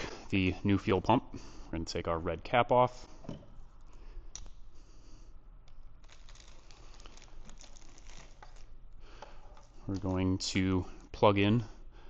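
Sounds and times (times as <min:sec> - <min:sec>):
plastic bag crinkling: 0:06.0 - 0:08.8.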